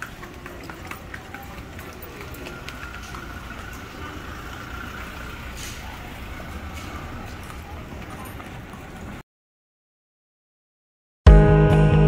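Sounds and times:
vehicle driving on cobblestones: 0:00.0 - 0:09.2.

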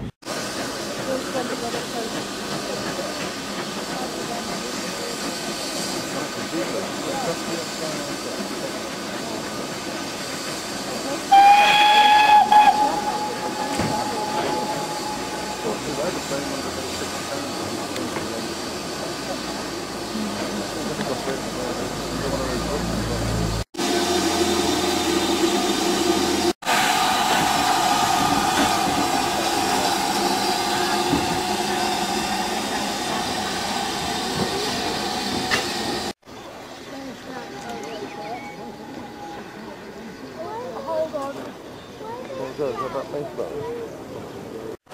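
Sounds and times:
locomotive steam hiss: 0:00.0 - 0:41.8
steam locomotive whistle: 0:11.3 - 0:16.8, 0:26.6 - 0:36.0.

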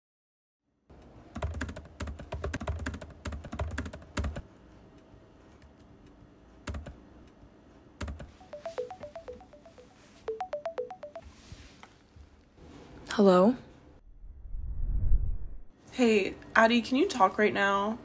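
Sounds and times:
laptop keyboard typing: 0:01.3 - 0:04.5, 0:06.6 - 0:07.0, 0:08.0 - 0:11.2
phone ringtone: 0:08.3 - 0:11.5.

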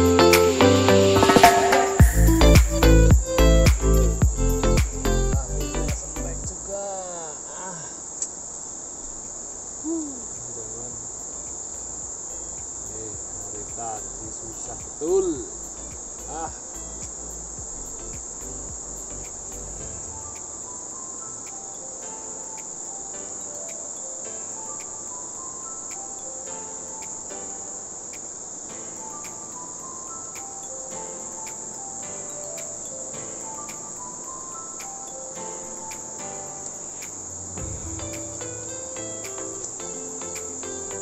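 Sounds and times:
background music with a beat: 0:00.0 - 0:06.6, 0:12.6 - 0:20.5, 0:32.4 - 0:36.4, 0:37.0 - 0:41.0
high-pitched insect drone: 0:00.0 - 0:41.0.

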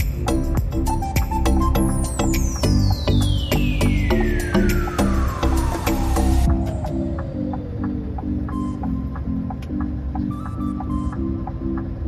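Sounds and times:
background music with steady beat: 0:00.0 - 0:12.0
electronic sweep falling in pitch: 0:02.6 - 0:08.8.

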